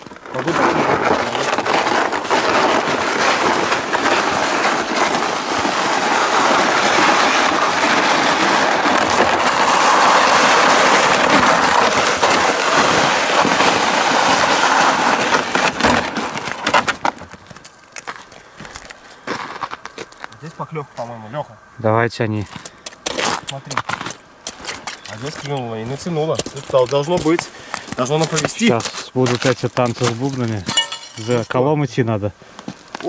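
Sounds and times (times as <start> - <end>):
sled knocks: 0.0 - 17.6
sled scraping across ice and snow: 0.0 - 21.4, 22.5 - 31.9.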